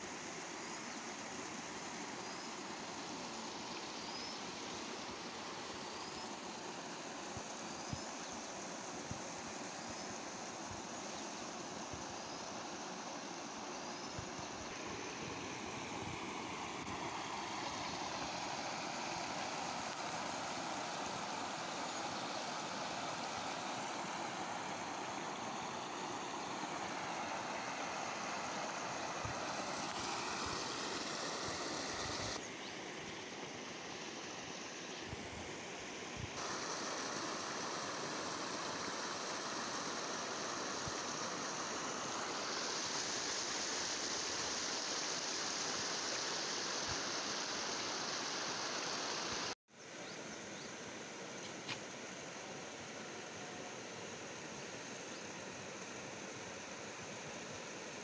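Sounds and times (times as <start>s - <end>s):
stream rushing over rocks: 12.5s - 32.4s, 36.4s - 49.6s.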